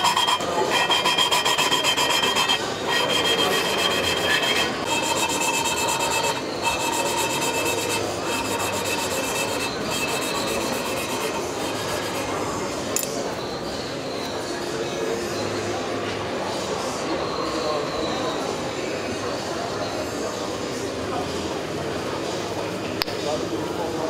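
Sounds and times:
gritty valve lapping rubbing: 0.0s - 12.3s.

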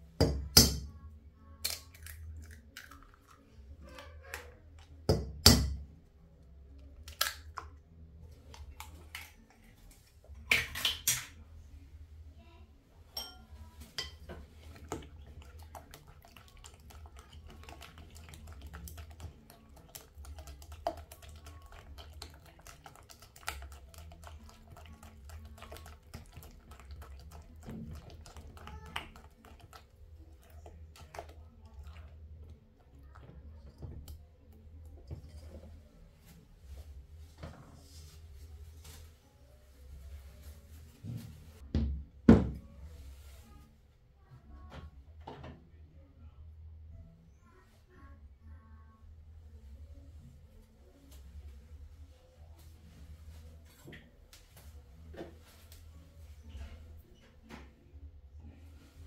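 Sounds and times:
eggs cracked on bowl rim: 1.6s - 3.3s, 7.0s - 7.7s, 10.5s - 11.4s
fork beating batter in bowl: 13.2s - 34.2s.

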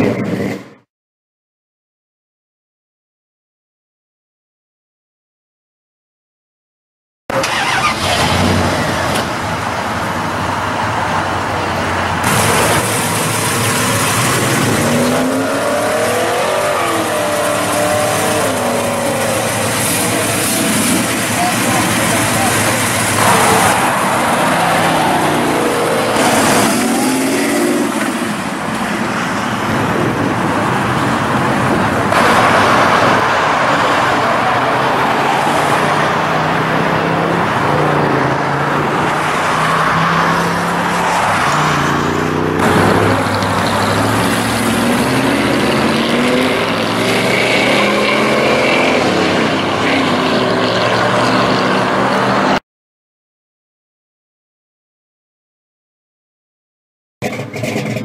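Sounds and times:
car engine accelerating away: 11.7s - 28.8s, 32.0s - 52.6s.

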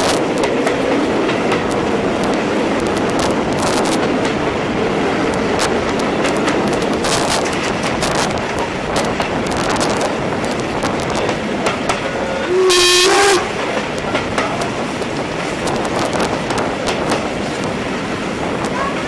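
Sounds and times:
train wheels clicking over rail joints: 0.0s - 19.0s
steam locomotive whistle blast: 12.1s - 13.6s.

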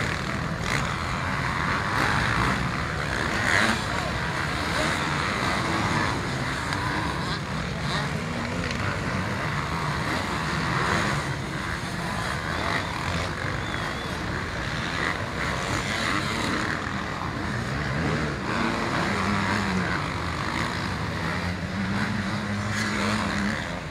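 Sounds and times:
motocross bike engines revving: 0.0s - 23.9s.

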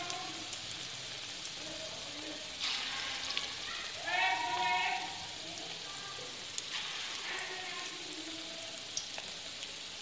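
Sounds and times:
food deep-frying in hot oil: 0.0s - 10.0s
oil crackling: 0.0s - 10.0s.

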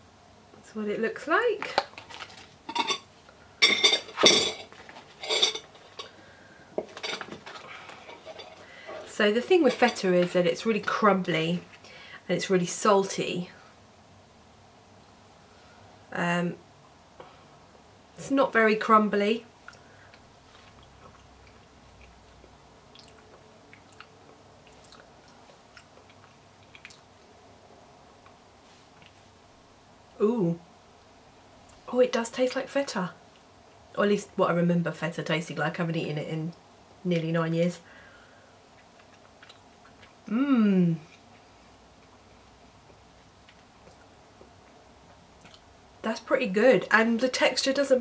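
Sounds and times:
cutlery clattering against dishes: 3.7s - 6.1s
person chewing soft food: 19.6s - 27.2s, 38.7s - 40.3s, 41.1s - 45.7s.

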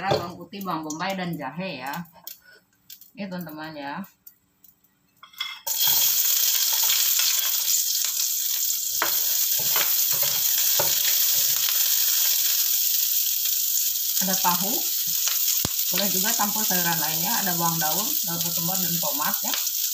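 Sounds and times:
aromatics sizzling in hot oil: 5.3s - 19.9s.

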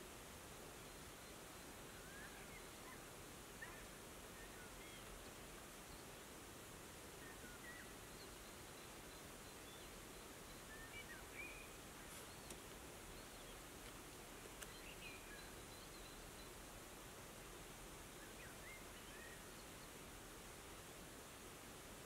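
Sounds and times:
steady background hiss: 0.0s - 22.0s
distant small birds chirping: 0.8s - 21.7s
faint ticks: 12.0s - 15.5s.

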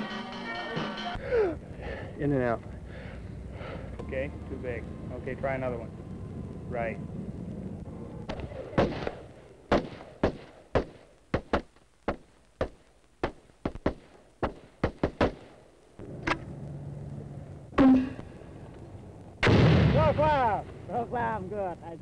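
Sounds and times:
rifle shots: 8.3s - 11.7s, 12.6s - 15.6s, 19.4s - 20.3s.

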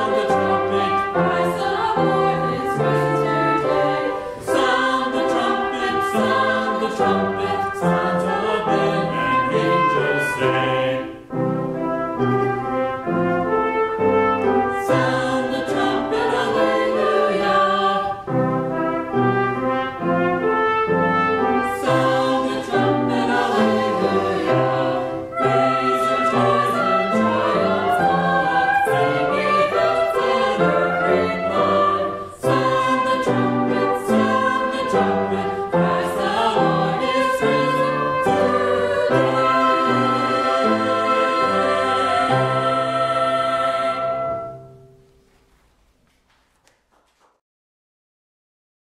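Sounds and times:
choir singing a hymn: 0.0s - 45.0s
trumpet playing: 0.0s - 45.2s.

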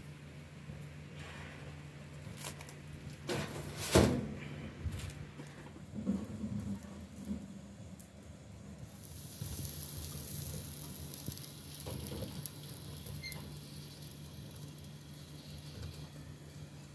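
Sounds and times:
gas burner hissing: 6.3s - 16.9s.

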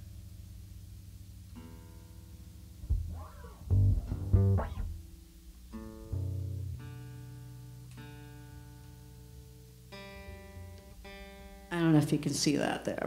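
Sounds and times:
electric bass notes plucked: 2.8s - 9.6s
acoustic guitar notes plucked: 2.8s - 12.1s.

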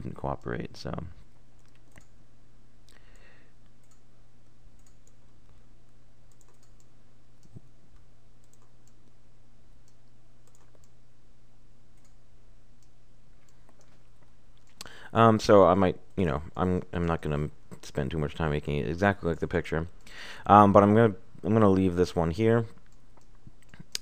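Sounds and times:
low electrical hum: 0.0s - 24.0s
computer mouse clicks: 1.6s - 2.2s, 3.1s - 4.0s, 4.8s - 5.2s, 6.3s - 9.2s, 9.8s - 11.0s, 12.0s - 12.2s.

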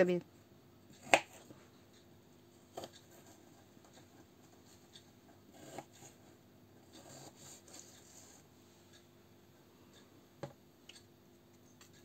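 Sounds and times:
knife scraping: 5.5s - 8.5s.

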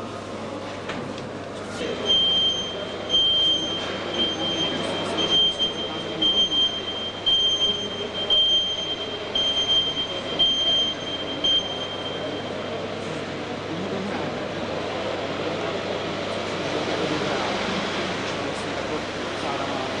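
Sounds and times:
murmur of crowd: 0.0s - 20.0s
reversing warning beeps: 1.8s - 13.0s.

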